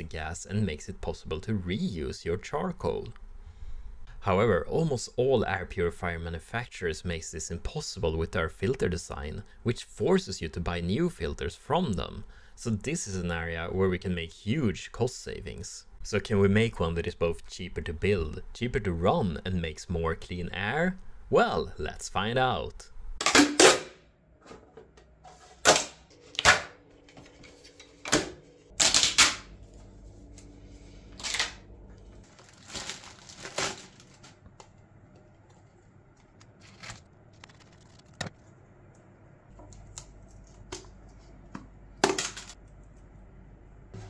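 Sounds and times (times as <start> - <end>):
plastic wrapper crinkling: 32.2 - 34.8, 35.5 - 38.5.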